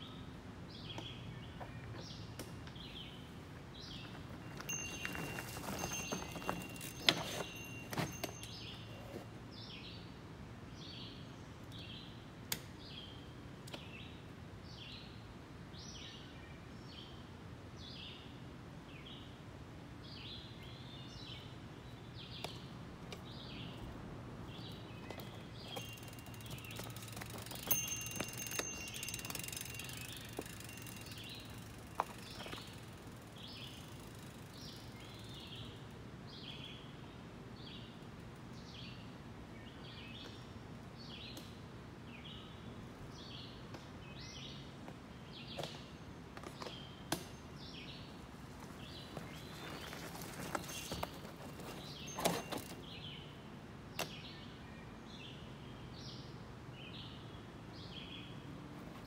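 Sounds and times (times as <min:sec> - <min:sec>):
mountain bike clattering over rocks: 0:04.0 - 0:08.8, 0:25.1 - 0:34.7, 0:49.0 - 0:52.9
songbird chirping: 0:20.0 - 0:58.5.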